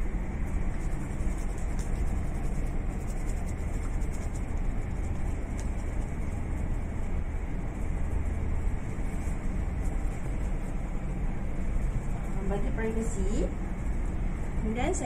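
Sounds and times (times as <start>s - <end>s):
low room rumble: 0.0s - 15.0s
hands rubbing together: 0.8s - 6.8s.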